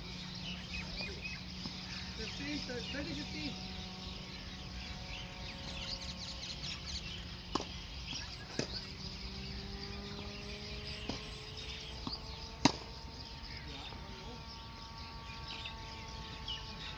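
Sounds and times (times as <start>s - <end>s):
birds chirping: 0.0s - 16.9s
tennis ball hits: 7.4s - 8.9s, 11.0s - 13.0s.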